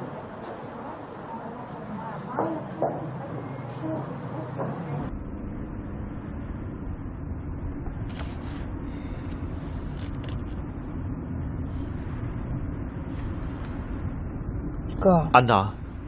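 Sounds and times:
car engine and road noise: 4.8 - 15.0.

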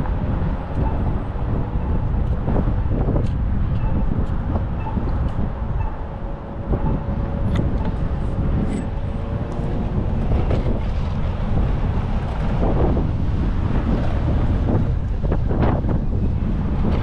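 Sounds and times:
city traffic: 0.0 - 17.0
wind buffeting the microphone: 0.0 - 17.0.

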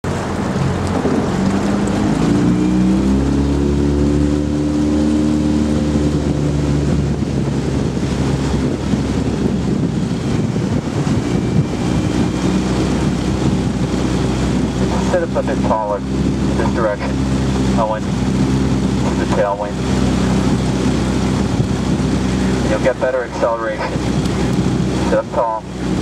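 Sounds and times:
motorboat engine running: 0.0 - 26.0
wind rumbling on microphone: 0.0 - 26.0.

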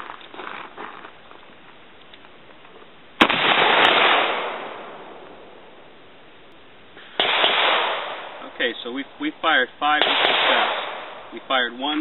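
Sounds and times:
shotgun shot echoing: 3.2 - 5.6, 7.1 - 8.6, 9.9 - 11.4.

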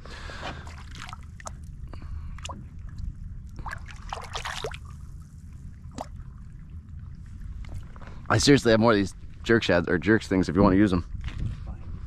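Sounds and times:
low steady rumble: 0.0 - 12.0
water splashes and drips: 0.4 - 8.2.

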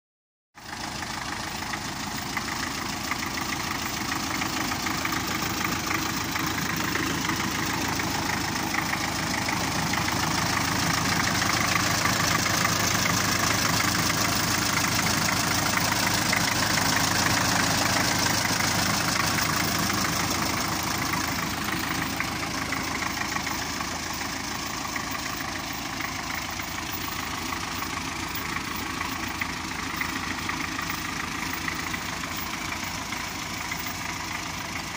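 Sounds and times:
tractor diesel engine idling: 0.6 - 34.9.

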